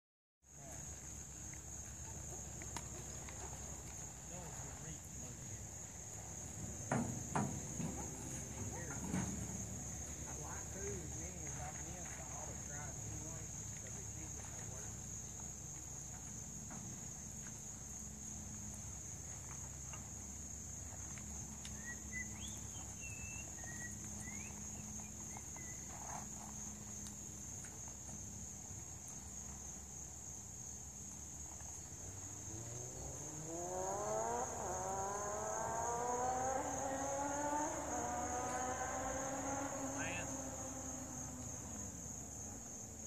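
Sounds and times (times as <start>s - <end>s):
crickets chirping: 0.5s - 43.0s
low hum: 30.9s - 43.0s
engine revving: 32.0s - 42.6s.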